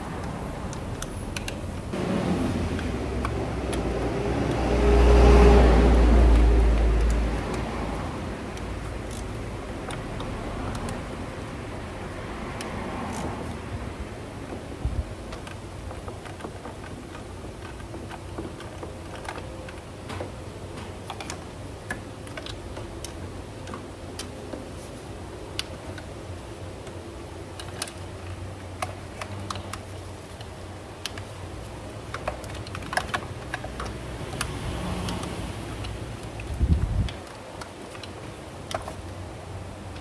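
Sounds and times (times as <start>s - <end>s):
plastic parts clicking: 0.2s - 1.9s, 15.3s - 24.8s, 26.8s - 39.2s.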